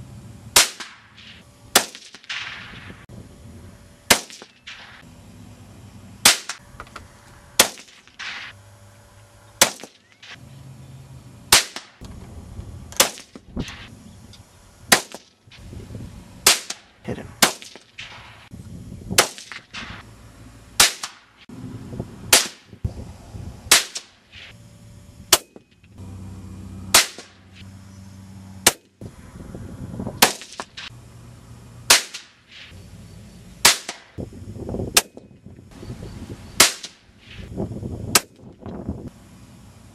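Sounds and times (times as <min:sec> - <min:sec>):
rifle shots cracking: 0:00.6 - 0:02.8, 0:04.1 - 0:05.0, 0:06.2 - 0:06.6, 0:07.6 - 0:08.5, 0:09.6 - 0:10.4, 0:11.5 - 0:12.0, 0:13.0 - 0:13.4, 0:14.9 - 0:15.3, 0:16.4 - 0:18.5, 0:19.2 - 0:20.0, 0:20.8 - 0:21.3, 0:22.3 - 0:22.7, 0:23.7 - 0:24.2, 0:26.9 - 0:27.4, 0:30.2 - 0:30.9, 0:31.9 - 0:32.4, 0:33.6 - 0:34.2, 0:36.6 - 0:37.0.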